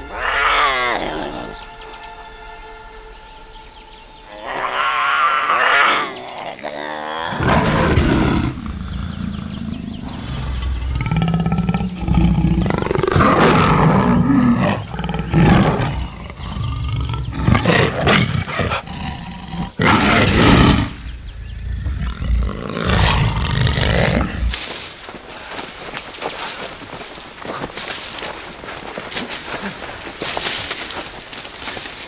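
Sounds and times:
jaguar snarling and roaring: 4.3 - 24.6.

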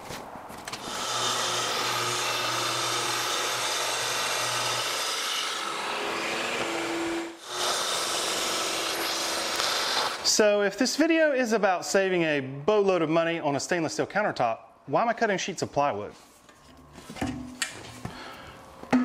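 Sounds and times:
circular saw cutting plywood: 0.8 - 10.3.

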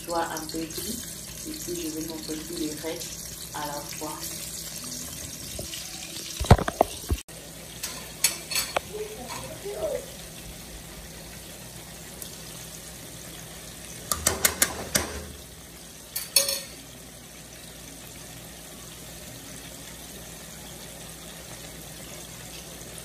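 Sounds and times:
vegetables sizzling in oil: 0.0 - 23.0.

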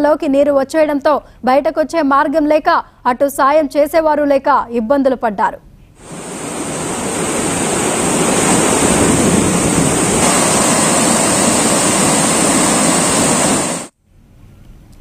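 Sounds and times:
floodwater rushing: 6.0 - 13.9.

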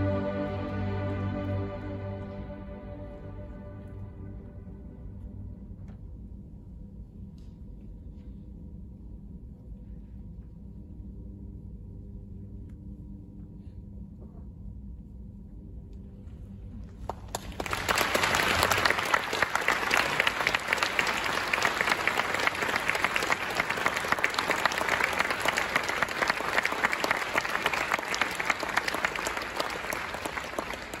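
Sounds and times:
audience applauding: 17.1 - 31.0.

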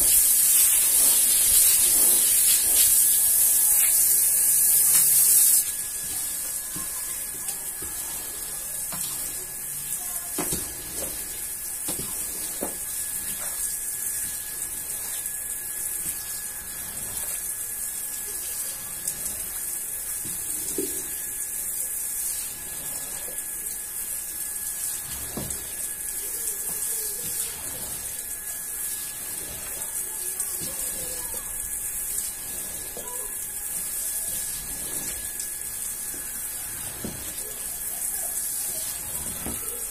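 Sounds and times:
water spray hissing: 0.0 - 6.5
squeegee scraping rug: 33.7 - 35.9, 38.8 - 39.9.

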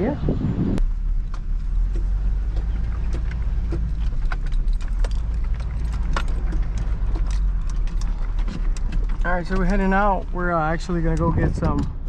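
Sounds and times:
engine and road rumble: 0.0 - 12.0
light clicks and rattles: 1.1 - 12.0.

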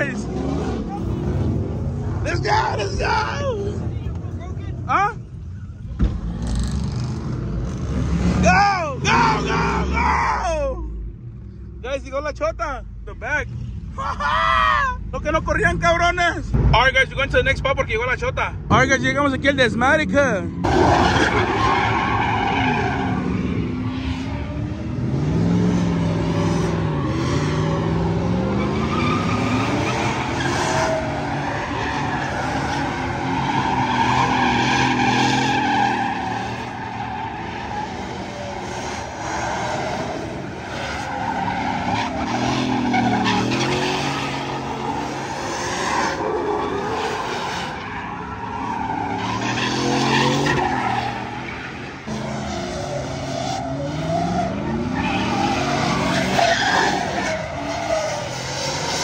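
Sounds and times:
truck engine revving: 0.0 - 4.4, 6.0 - 10.3, 20.6 - 59.0
tyres screeching on pavement: 20.5 - 24.6, 25.9 - 59.0.

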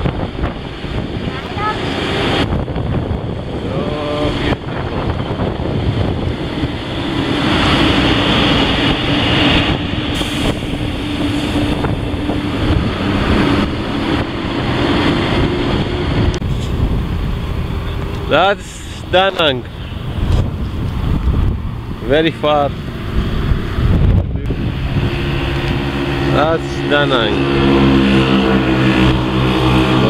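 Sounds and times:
motorcycle engine drone: 0.0 - 30.0
wind rushing over microphone: 0.0 - 30.0.

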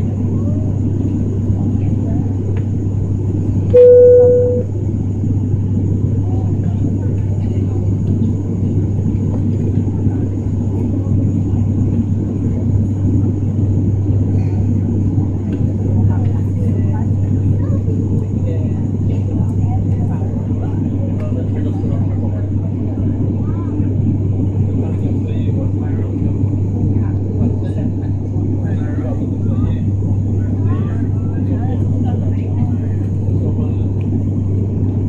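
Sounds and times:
airliner engine drone in cabin: 0.0 - 35.0
cabin chime: 3.8 - 4.7.

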